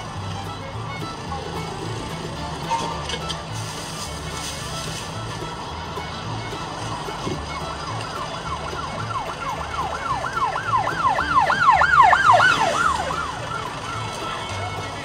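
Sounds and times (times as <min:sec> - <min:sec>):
emergency siren yelping: 0:06.9 - 0:14.8.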